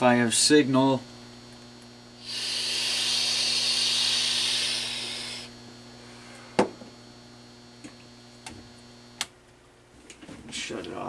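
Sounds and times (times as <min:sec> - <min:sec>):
faint mains hum: 0:00.0 - 0:11.0
steady hiss: 0:02.1 - 0:06.6.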